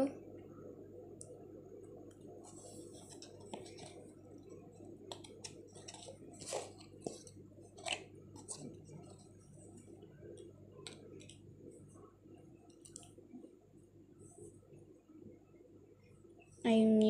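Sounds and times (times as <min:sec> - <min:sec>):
low steady hum: 0:00.0 - 0:17.0
cardboard rustling and scraping: 0:02.4 - 0:04.1, 0:05.2 - 0:09.3.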